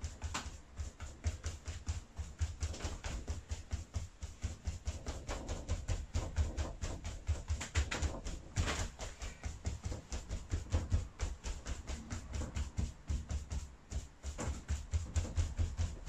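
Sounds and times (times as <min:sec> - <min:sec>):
brush swishing over wet glaze: 0:08.2 - 0:16.0.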